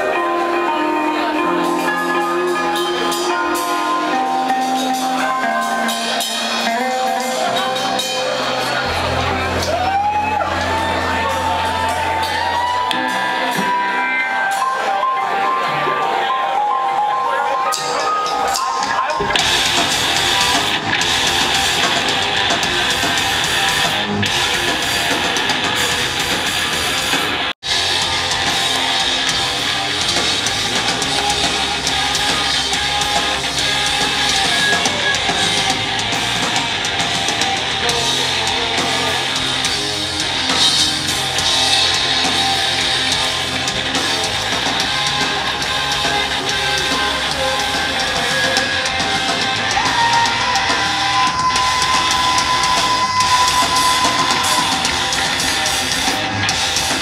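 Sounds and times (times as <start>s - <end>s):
live heavy rock band: 0.0s - 57.0s.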